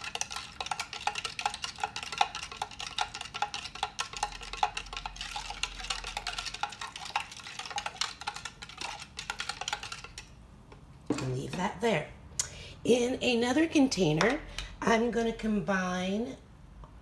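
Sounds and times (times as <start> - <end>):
spoon stirring in plastic container: 0.0 - 10.4.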